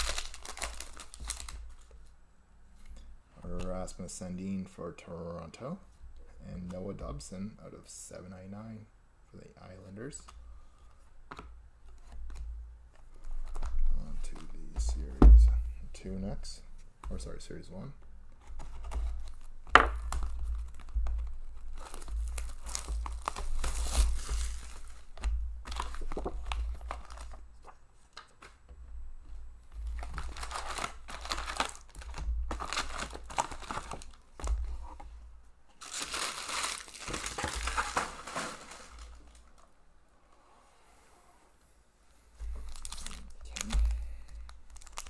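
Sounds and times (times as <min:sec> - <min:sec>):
foil packs crinkling: 0:00.0 - 0:01.9, 0:18.8 - 0:28.4, 0:29.8 - 0:34.9, 0:35.8 - 0:39.7, 0:42.6 - 0:45.0
plastic wrap tearing: 0:00.0 - 0:01.9, 0:18.8 - 0:27.4, 0:30.0 - 0:34.5, 0:35.8 - 0:39.6, 0:42.6 - 0:43.9, 0:44.7 - 0:45.0.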